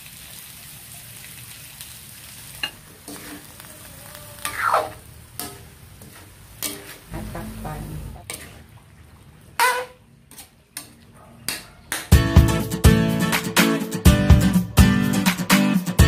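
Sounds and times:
vegetables sizzling in a wok: 0.0 - 7.2
ladle scraping along pan: 2.6 - 8.8, 9.6 - 10.9.

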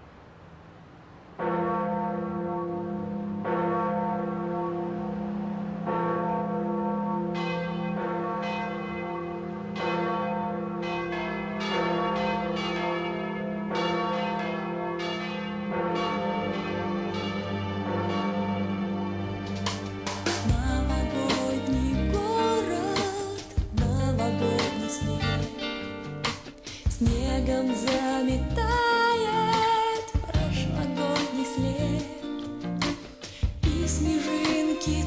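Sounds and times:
church bells ringing: 1.4 - 23.1.

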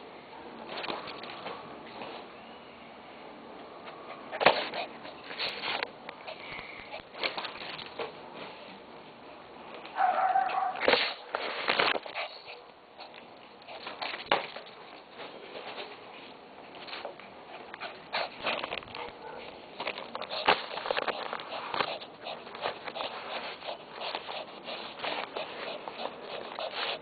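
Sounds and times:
dog tearing paper: 10.6 - 12.4, 19.8 - 27.0.

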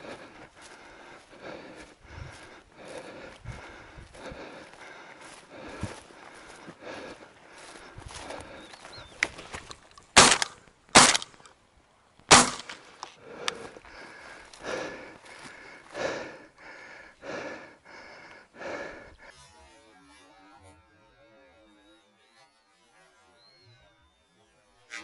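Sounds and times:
shotgun shots: 10.2 - 11.4, 12.3 - 12.8.

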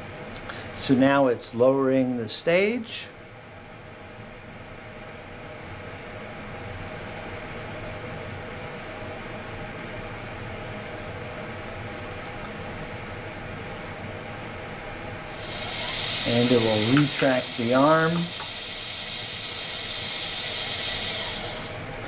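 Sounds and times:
high whine: 0.0 - 22.0
motorized stage drive running: 15.2 - 22.0.

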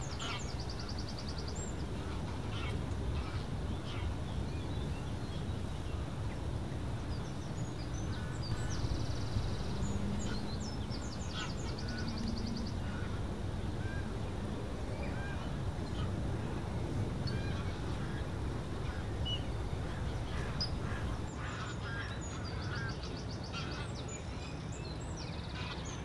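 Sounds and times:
geese calling in flight: 0.0 - 4.2, 8.1 - 21.6
steady low rumble: 0.0 - 21.3.

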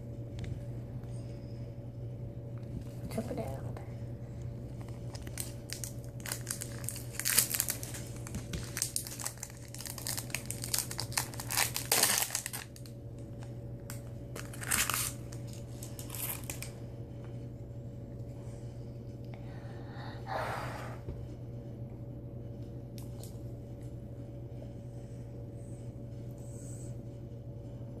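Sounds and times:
plastic wrapper crinkling: 4.7 - 16.8.

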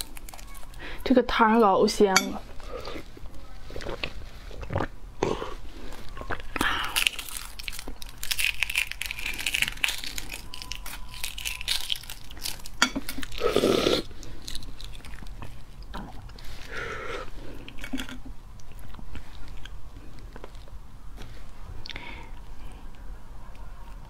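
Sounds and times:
egg shell crackling: 6.4 - 13.4.

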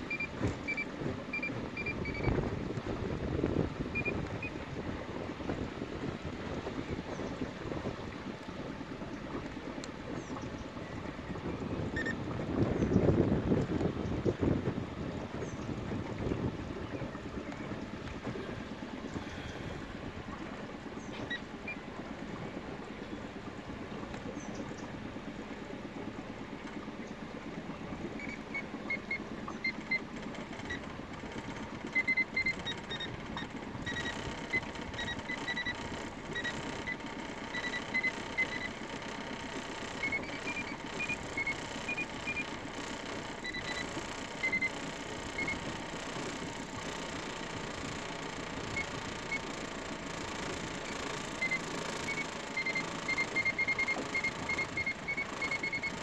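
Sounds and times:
motorboat engine running: 0.0 - 56.0
short high-pitched beeps: 0.1 - 2.3, 3.9 - 4.6, 12.0 - 12.2, 31.9 - 38.8, 40.0 - 42.5, 43.4 - 45.7, 50.8 - 56.0.

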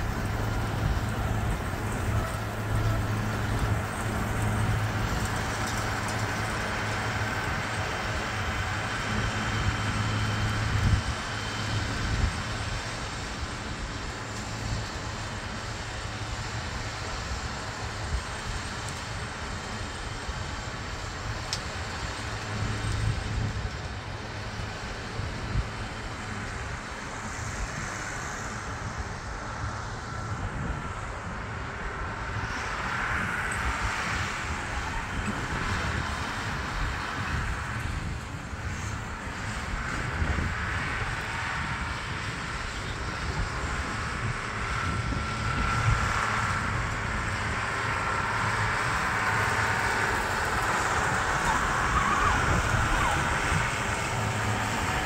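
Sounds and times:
baler mechanical rumble: 0.0 - 32.7, 33.5 - 55.0
tractor engine running: 0.0 - 55.0.

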